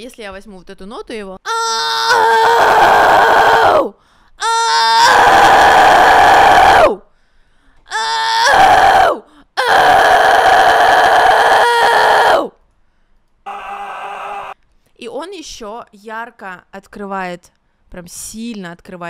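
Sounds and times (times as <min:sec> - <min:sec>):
woman screaming metal vocals: 0:13.5 - 0:14.6.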